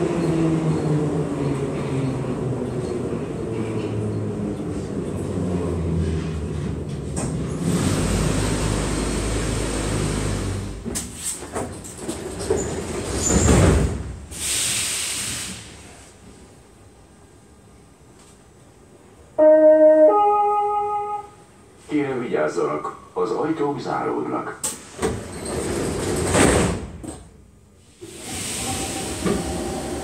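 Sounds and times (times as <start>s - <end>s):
metro train running and braking: 0.0s - 30.0s
sliding doors opening with clunk: 0.1s - 14.3s, 24.6s - 27.4s, 28.0s - 30.0s
short hiss of air: 14.3s - 16.2s, 28.0s - 29.7s.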